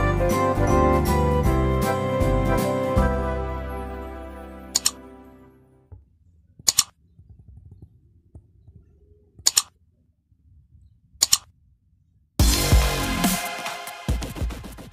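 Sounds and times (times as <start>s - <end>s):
mouse double click: 4.8s - 5.0s, 9.5s - 9.7s, 11.2s - 11.5s
loud electronic music: 12.4s - 14.9s.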